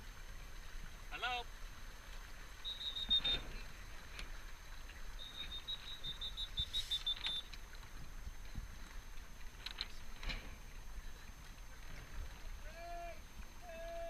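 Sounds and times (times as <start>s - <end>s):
water noise: 0.0s - 14.0s
wind: 0.0s - 14.0s
high fast-pulsing chirp: 2.6s - 3.4s, 5.2s - 7.5s.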